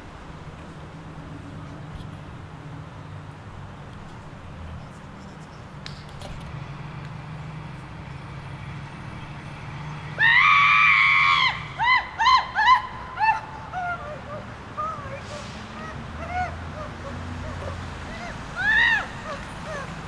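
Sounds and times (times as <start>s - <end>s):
woman screaming: 10.2s - 20.0s.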